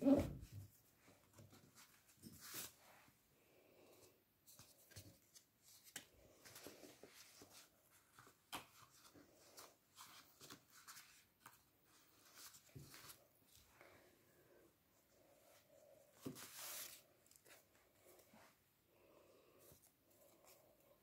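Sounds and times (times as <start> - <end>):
paper rustling and sliding: 16.2 - 17.6.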